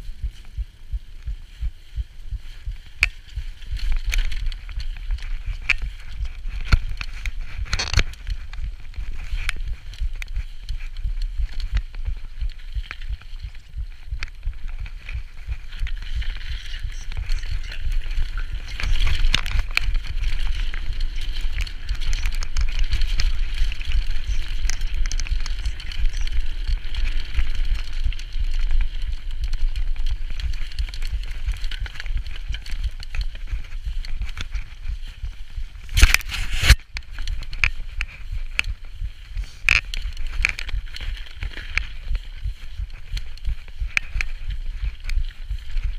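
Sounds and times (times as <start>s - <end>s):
bike rattling: 0.0s - 45.9s
tyres crackling over mud: 0.0s - 45.9s
wind rumbling on microphone: 0.0s - 45.9s.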